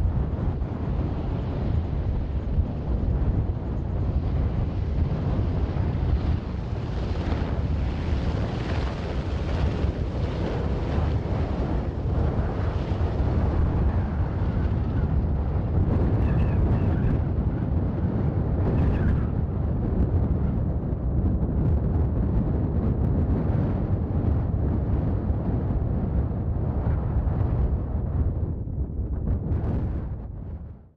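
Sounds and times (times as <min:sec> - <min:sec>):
helicopter rotor rumble: 0:00.0 - 0:30.7.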